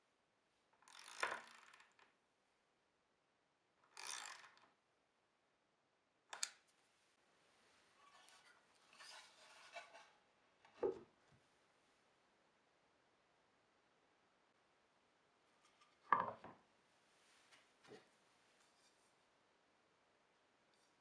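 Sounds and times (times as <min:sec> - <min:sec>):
wooden knock: 0:16.1 - 0:16.6.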